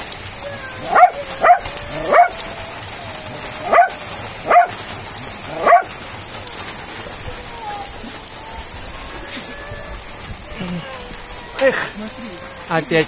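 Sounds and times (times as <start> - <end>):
heavy rain hissing: 0.0 - 13.0
dog barking: 0.8 - 2.4, 3.6 - 4.8, 5.5 - 6.0.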